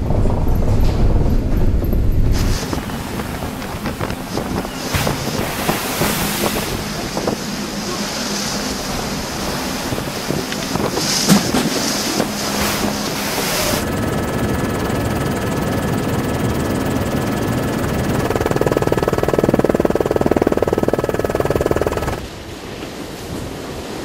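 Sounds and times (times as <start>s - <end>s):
steady low rumble: 0.0s - 22.4s
storm wind: 0.0s - 24.0s
wind buffeting microphone: 0.0s - 24.0s
breaking seas: 2.4s - 13.8s
faint steady tones: 11.9s - 22.2s.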